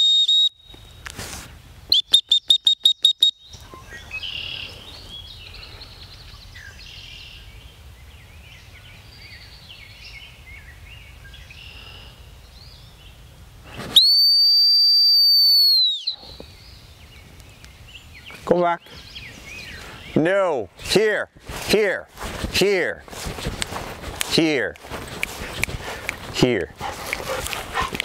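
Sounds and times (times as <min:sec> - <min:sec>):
long whistle blast: 0:00.0 - 0:00.7, 0:13.9 - 0:16.2
short whistle toots: 0:00.0 - 0:00.8, 0:01.9 - 0:03.4, 0:13.9 - 0:16.3
birds chirping faintly: 0:03.3 - 0:13.3, 0:16.1 - 0:28.0.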